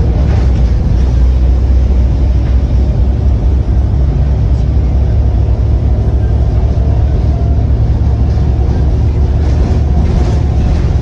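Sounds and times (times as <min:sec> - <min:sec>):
diesel bus engine rumbling: 0:00.0 - 0:11.0.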